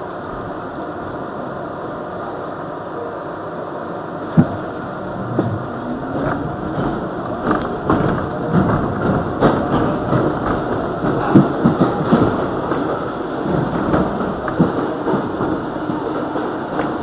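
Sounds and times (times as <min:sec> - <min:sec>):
subway train running noise: 0:00.0 - 0:17.0
wheel clacks over rail joints: 0:04.3 - 0:17.0.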